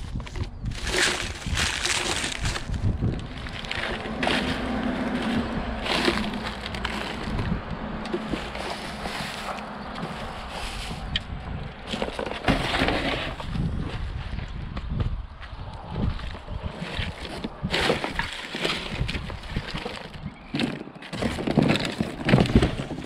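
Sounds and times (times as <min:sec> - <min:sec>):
wood cracking: 0:00.0 - 0:10.4
debris scraping and knocking: 0:00.0 - 0:11.2, 0:11.8 - 0:13.6, 0:16.7 - 0:23.0.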